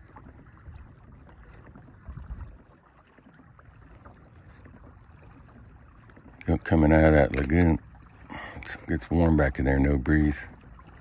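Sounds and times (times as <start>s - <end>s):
water lapping against kayak hull: 0.0s - 11.0s
kayak hull bump: 6.8s - 7.9s.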